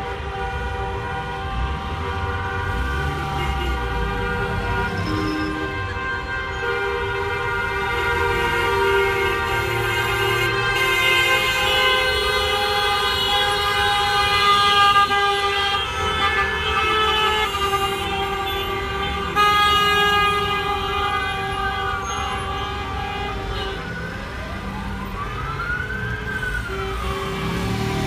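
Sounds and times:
many car horns sounding: 0.0s - 28.0s
siren wailing: 19.9s - 28.0s.

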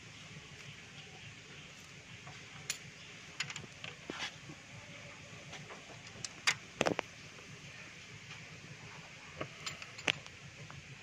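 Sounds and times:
steel tools clinking on engine parts: 2.6s - 3.7s, 9.4s - 10.3s.

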